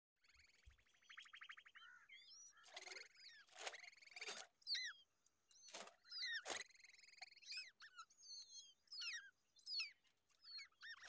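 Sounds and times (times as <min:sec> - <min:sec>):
songbird dry trill: 0:00.2 - 0:05.0
swooping bird chirps: 0:00.2 - 0:11.0.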